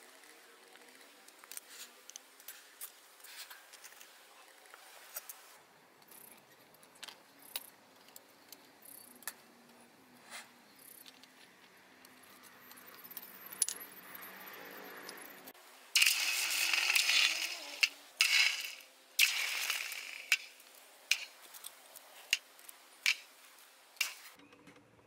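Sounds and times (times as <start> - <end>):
small metal pieces clinking: 16.0 - 22.4.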